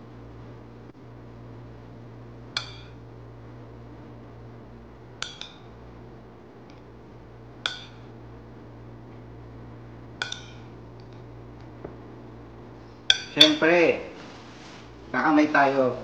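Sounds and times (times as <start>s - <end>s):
steady low hum: 0.0s - 16.0s
fork clinking on ceramic plate: 13.1s - 13.6s.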